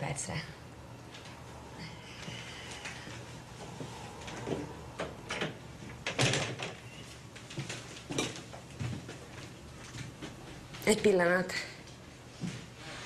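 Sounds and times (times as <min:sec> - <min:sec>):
knocks and clunks of handling: 0:07.4 - 0:09.2.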